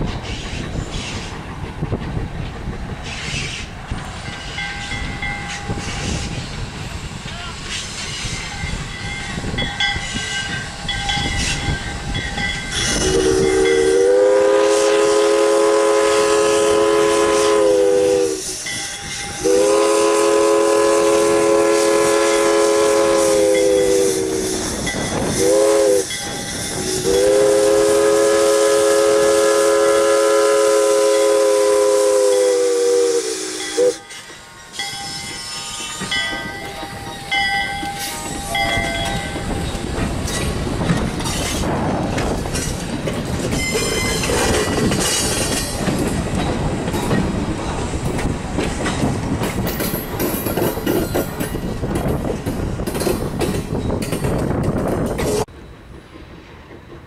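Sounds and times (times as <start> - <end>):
passenger coaches rolling past: 0.0 - 57.0
steam locomotive whistle: 12.7 - 34.2.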